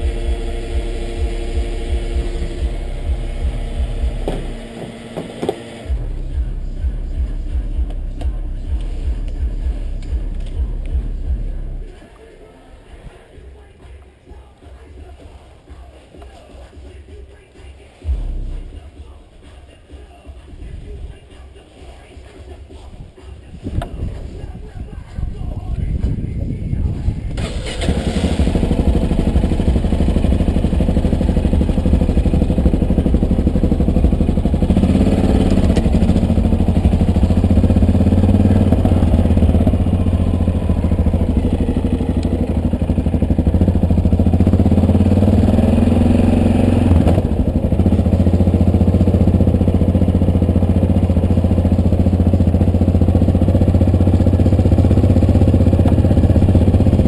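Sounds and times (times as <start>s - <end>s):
motorcycle engine running: 0.0s - 12.0s, 23.6s - 57.0s.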